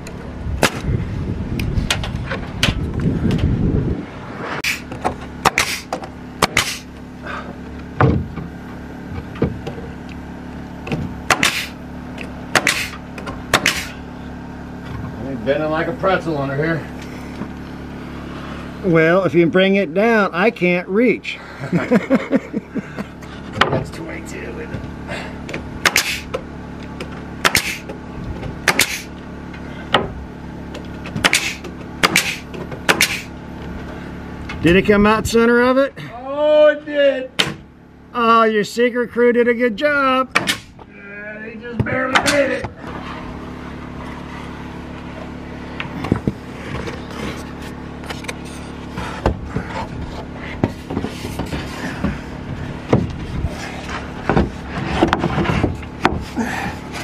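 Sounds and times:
steady low hum: 0:00.0 - 0:57.0
nail gun shots: 0:00.6 - 0:00.8, 0:04.6 - 0:06.9, 0:11.2 - 0:11.8, 0:12.5 - 0:14.0, 0:25.8 - 0:26.4, 0:27.4 - 0:27.8, 0:28.6 - 0:29.1, 0:31.2 - 0:33.3, 0:40.3 - 0:40.8
puff of exhaust air: 0:03.1 - 0:07.7, 0:11.4 - 0:11.8, 0:12.6 - 0:13.0, 0:13.6 - 0:14.3, 0:25.0 - 0:26.4, 0:27.4 - 0:27.9, 0:28.7 - 0:30.0, 0:31.2 - 0:34.3.

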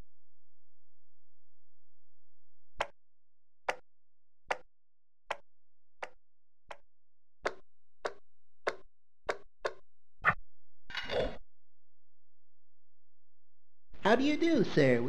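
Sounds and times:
cartoon footsteps: 0:07.5 - 0:11.4.

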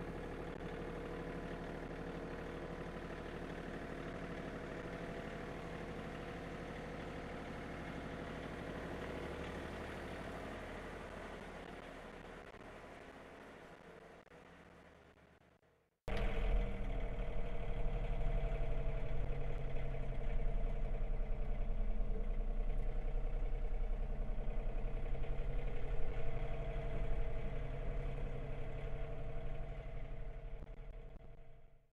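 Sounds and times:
tractor diesel engine running: 0:00.0 - 0:15.4, 0:16.1 - 0:31.8.

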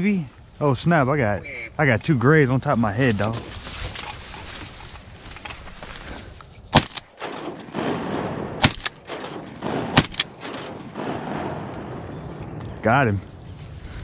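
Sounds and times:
shotgun blasts: 0:06.7 - 0:12.8.

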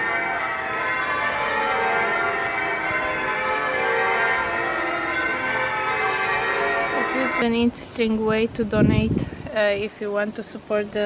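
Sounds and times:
church bells ringing: 0:00.0 - 0:08.3.

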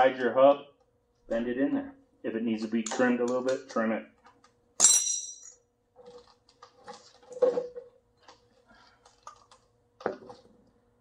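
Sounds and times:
metallic clink with ring: 0:04.8 - 0:05.6.

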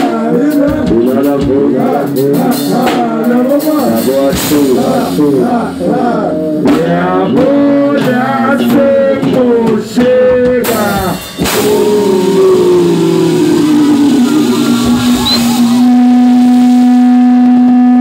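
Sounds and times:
person rapping: 0:00.0 - 0:13.8
live band music: 0:00.0 - 0:18.0
hissy wash with falling tone: 0:11.5 - 0:16.8.

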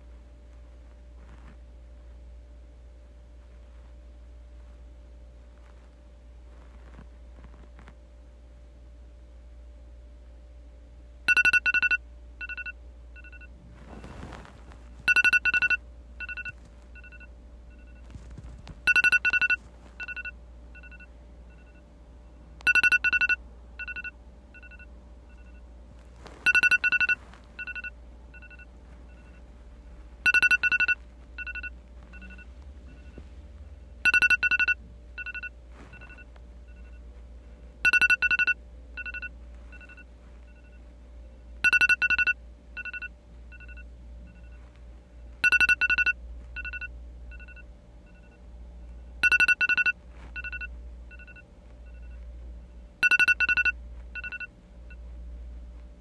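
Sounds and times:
phone alarm beeping: 0:11.3 - 0:14.4, 0:15.0 - 0:18.2, 0:18.8 - 0:21.8, 0:22.6 - 0:25.7, 0:26.3 - 0:29.5, 0:30.2 - 0:33.3, 0:34.0 - 0:37.0, 0:37.8 - 0:40.9, 0:41.5 - 0:44.7, 0:45.4 - 0:52.2, 0:53.0 - 0:55.0.

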